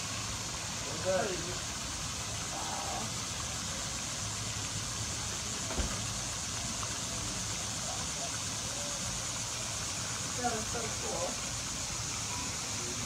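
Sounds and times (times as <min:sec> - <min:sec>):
constant high hiss: 0:00.0 - 0:13.0
short knock: 0:05.7 - 0:06.1.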